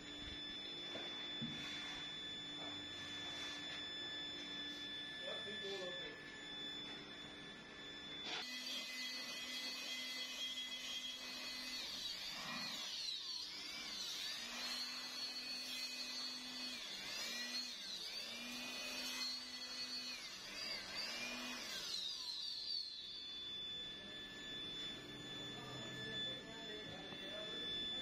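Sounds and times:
thin high tone: 0:00.0 - 0:11.8, 0:20.8 - 0:28.0
electric air blower whine: 0:00.0 - 0:28.0.

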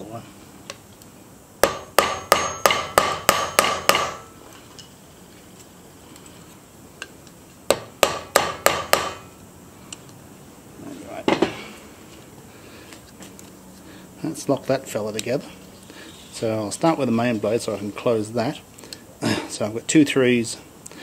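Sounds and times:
hammer tapping metal: 0:01.6 - 0:04.4, 0:07.7 - 0:09.3.

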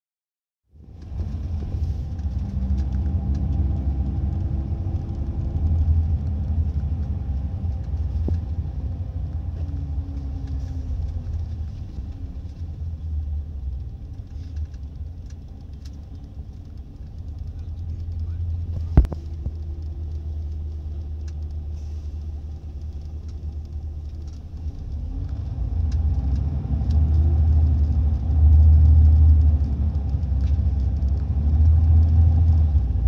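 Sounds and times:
bus engine rumble with whine: 0:00.7 - 0:33.0.

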